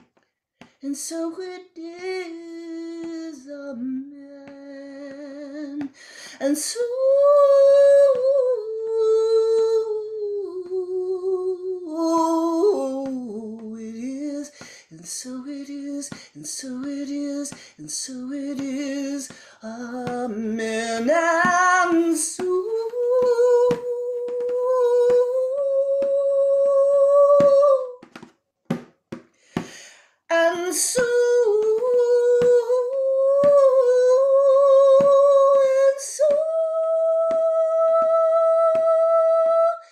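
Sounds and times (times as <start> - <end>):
woman chanting: 0.8 - 14.6, 15.2 - 28.0, 30.3 - 39.9
intake of breath: 5.9 - 6.4, 14.5 - 14.9, 17.5 - 17.8, 19.3 - 19.6, 29.3 - 30.3.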